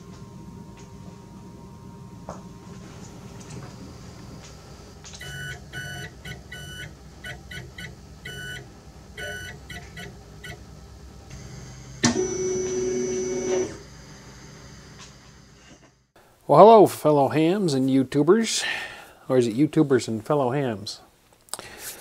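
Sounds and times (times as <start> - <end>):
stepper motors whining: 2.9 - 16.1.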